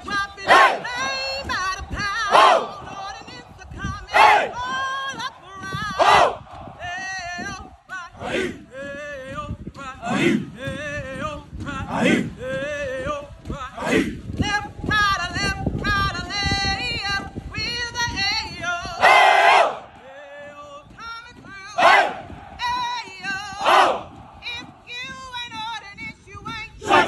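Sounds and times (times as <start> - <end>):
lead voice singing: 0.0 - 27.0
group shouting in unison: 23.6 - 24.0.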